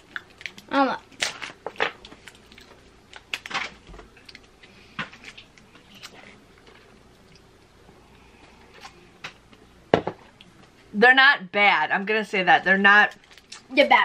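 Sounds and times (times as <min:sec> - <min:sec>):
crunchy wafer chewing: 0:00.0 - 0:07.5.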